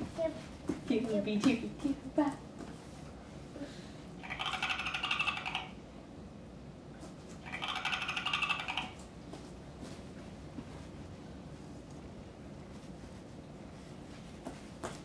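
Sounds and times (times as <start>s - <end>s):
toy rattling chatter from speaker: 4.2s - 5.8s, 7.4s - 9.0s.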